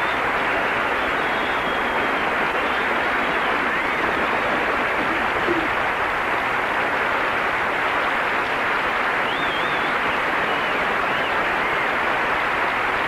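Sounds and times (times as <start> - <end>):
audience cheering: 0.0 - 6.0, 9.0 - 13.0
audience applauding: 0.0 - 13.0.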